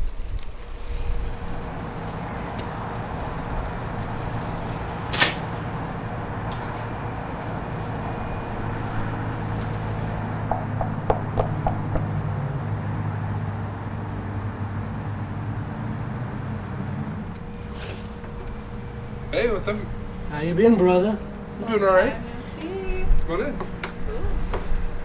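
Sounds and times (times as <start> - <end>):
knocking on door: 10.4 - 12.1
steady low hum: 16.6 - 25.0.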